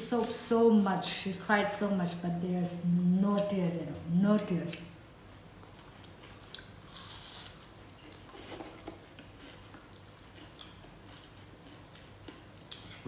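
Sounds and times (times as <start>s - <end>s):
chewing and crunching: 5.5s - 13.0s.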